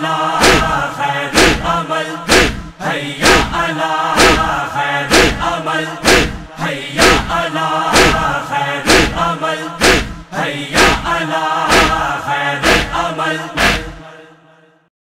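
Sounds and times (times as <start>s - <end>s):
men chanting: 0.0s - 14.8s
chest-beating strokes: 0.4s - 14.2s.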